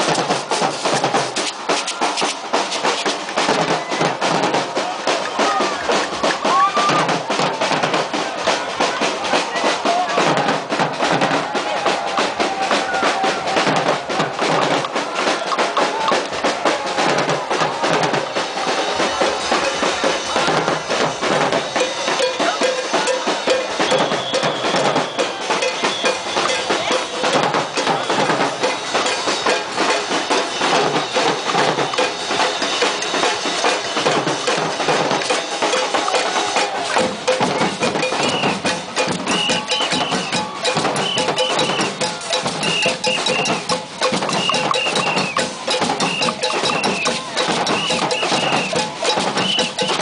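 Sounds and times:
percussion group drumming: 0:00.0 - 0:50.0.

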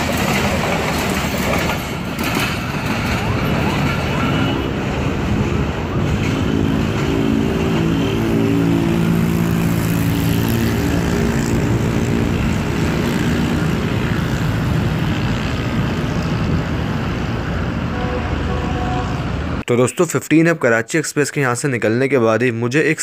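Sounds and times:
train rumbling away: 0:00.0 - 0:19.6
turboprop plane droning overhead: 0:03.1 - 0:18.0.

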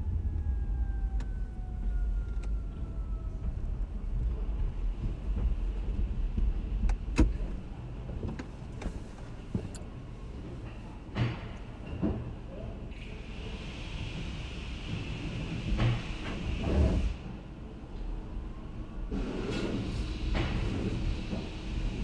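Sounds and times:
car low rumble: 0:00.0 - 0:11.0.

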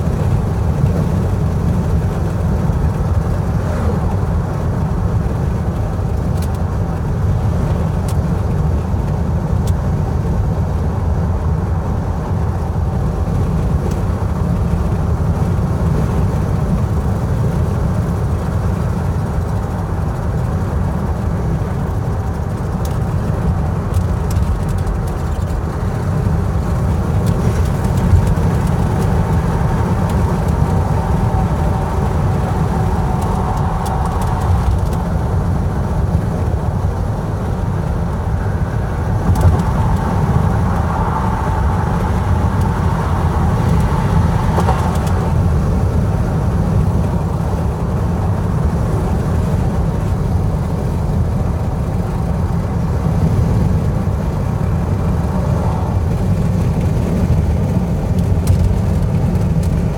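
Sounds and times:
car road and engine noise: 0:00.0 - 0:59.9.

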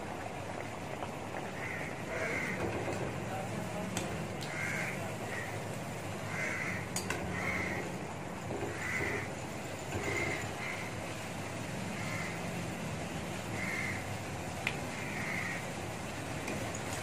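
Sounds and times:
food sizzling in hot oil: 0:00.0 - 0:17.0
crows cawing: 0:01.5 - 0:02.7, 0:04.5 - 0:05.6, 0:06.2 - 0:08.0, 0:08.6 - 0:09.4, 0:10.0 - 0:11.1, 0:11.9 - 0:12.4, 0:13.5 - 0:14.1, 0:14.9 - 0:15.8.

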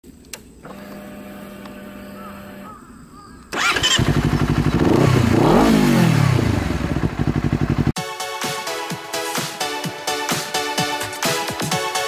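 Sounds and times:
motorcycle starter cranking: 0:03.5 - 0:07.9
faint steady ignition hum: 0:03.5 - 0:08.0
motorcycle engine revving and idling: 0:03.5 - 0:08.0.

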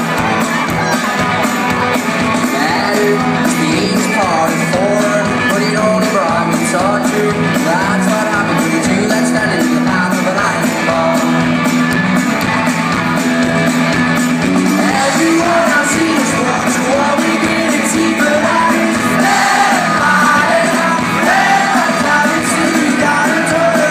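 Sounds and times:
drums: 0:00.0 - 0:23.9
electric guitar: 0:00.0 - 0:23.9
man singing: 0:02.4 - 0:11.6, 0:14.6 - 0:23.9.

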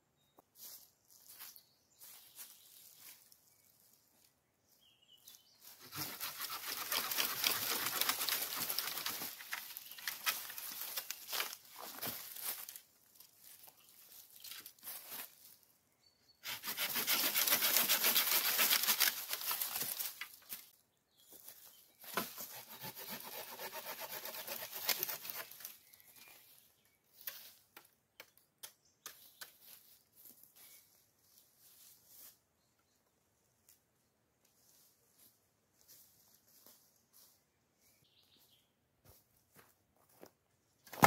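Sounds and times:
footsteps on dry leaves: 0:00.6 - 0:04.2, 0:05.6 - 0:15.7
leafy branches rustling through leaves: 0:05.6 - 0:15.6.

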